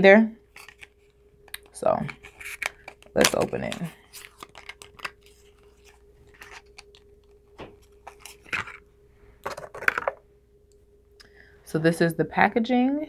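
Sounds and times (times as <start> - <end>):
packaging clicking and rustling: 0.5 - 8.8, 9.4 - 10.2.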